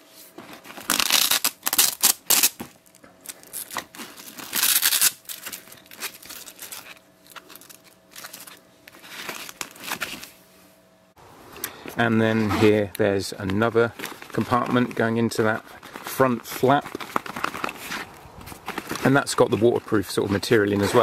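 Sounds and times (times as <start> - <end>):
velcro fastener ripping: 0.6 - 10.3, 13.9 - 21.0.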